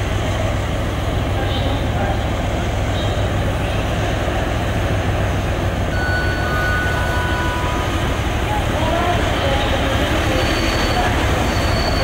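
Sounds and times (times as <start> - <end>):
diesel locomotive engine rumble: 0.0 - 12.0
thin high steady tone: 5.9 - 12.0.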